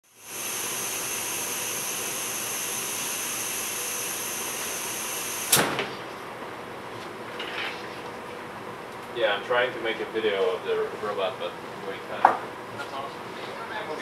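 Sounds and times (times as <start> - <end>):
hiss: 0.1 - 5.7.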